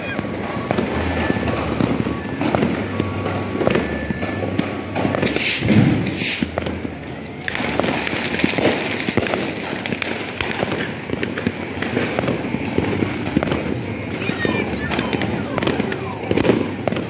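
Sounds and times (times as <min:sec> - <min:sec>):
firecrackers crackling and popping: 0:00.0 - 0:17.0
firework hiss: 0:05.2 - 0:06.8.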